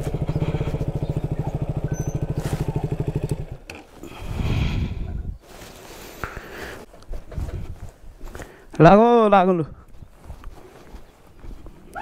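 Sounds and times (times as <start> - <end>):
motorcycle engine idling: 0.0 - 4.0
rustle: 1.7 - 4.8, 5.4 - 8.6.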